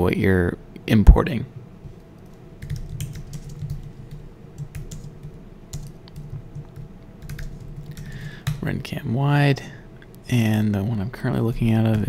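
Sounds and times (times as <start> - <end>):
computer keyboard typing: 1.8 - 8.7.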